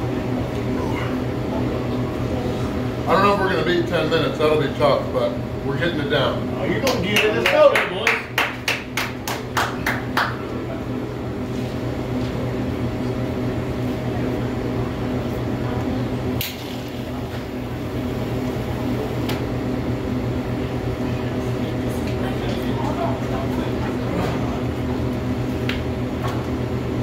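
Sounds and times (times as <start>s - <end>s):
electrical machine hum: 0.0s - 27.0s
hand claps: 6.8s - 10.6s.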